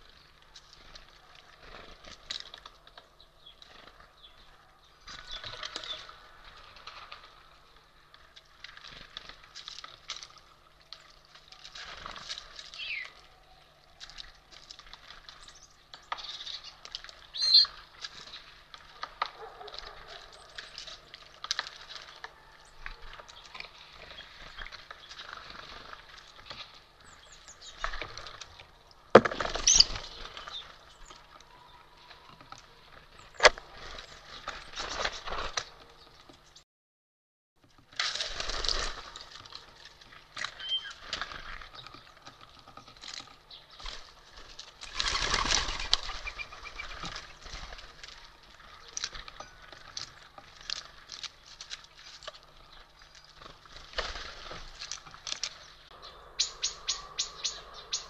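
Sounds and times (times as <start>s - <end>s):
short bird calls: 40.6s - 41.0s, 55.9s - 58.0s.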